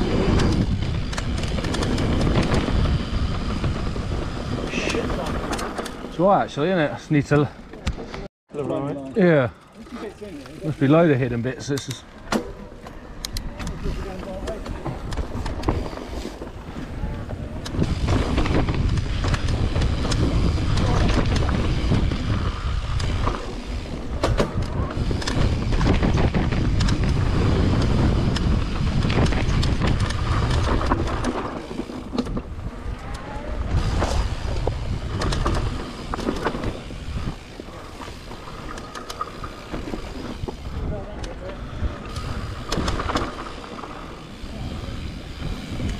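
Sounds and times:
bike clicks and rattles: 0.0s - 45.9s
tyres rumbling on dirt trail: 0.0s - 45.9s.

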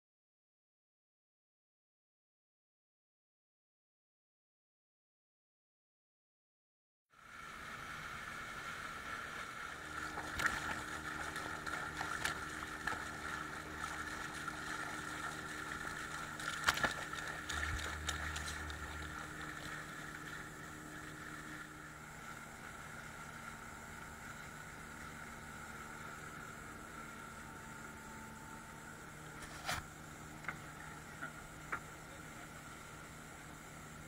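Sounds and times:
water rushing past hull: 7.2s - 29.3s
outboard motor running: 7.2s - 34.0s.

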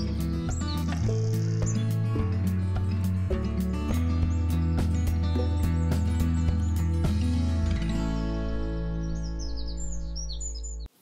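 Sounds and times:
upbeat theme music: 0.0s - 8.4s.

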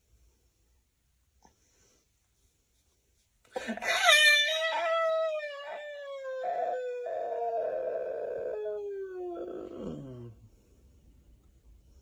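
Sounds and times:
man howling high-pitched: 3.6s - 10.2s.

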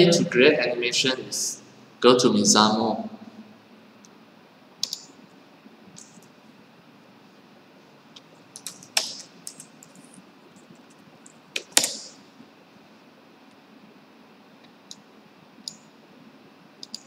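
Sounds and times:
keyboard clicks: 4.8s - 5.1s, 8.2s - 12.2s, 16.8s - 17.0s
typing on computer keyboard: 4.8s - 5.1s, 8.5s - 12.1s, 16.8s - 17.0s.

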